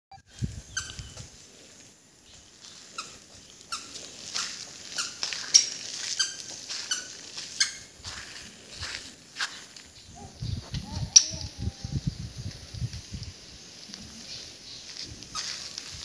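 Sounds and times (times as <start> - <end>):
squeaky shoes squeaking: 0.7 - 1.3, 2.8 - 8.2, 15.3 - 16.0.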